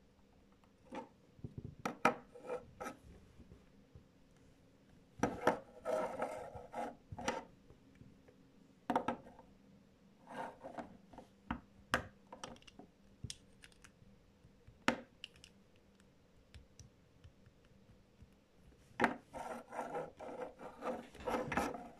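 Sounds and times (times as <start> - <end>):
plastic bricks clicking together: 12.4 - 13.9, 15.2 - 15.6.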